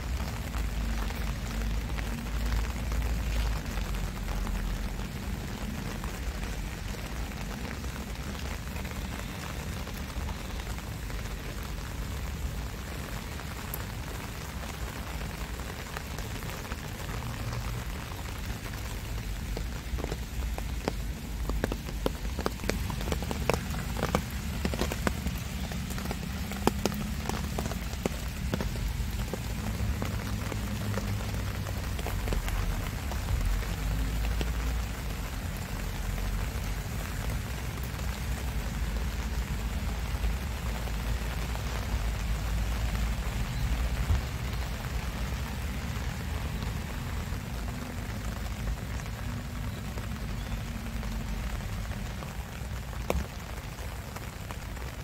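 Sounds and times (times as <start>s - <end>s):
rain falling on plants: 0.0s - 55.0s
sharp drip ticks: 17.2s - 34.8s.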